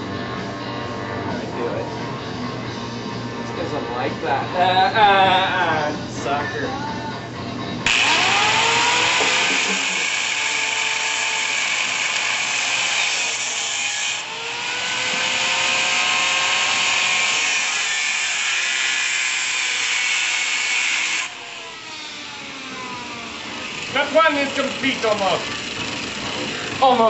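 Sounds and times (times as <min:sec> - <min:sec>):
power tool grinding steel: 0:07.8 - 0:27.0.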